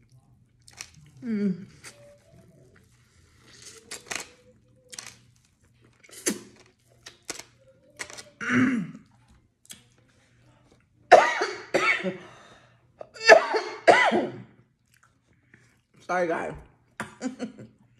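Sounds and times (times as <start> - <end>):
loud cough: 11.1 - 12.2, 13.2 - 14.5
person chewing with mouth smacks: 14.7 - 16.0.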